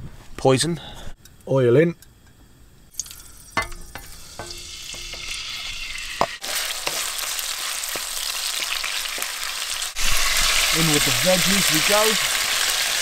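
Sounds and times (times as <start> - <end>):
utensils knocking on pan: 3.6 - 5.4
chicken frying in oil: 3.7 - 13.0.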